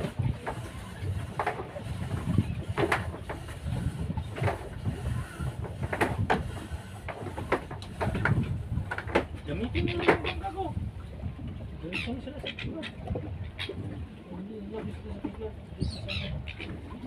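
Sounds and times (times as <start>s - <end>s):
wind buffeting microphone: 0.0s - 17.0s
sharp knocks and clatters: 0.4s - 3.6s, 4.2s - 4.8s, 5.6s - 9.4s.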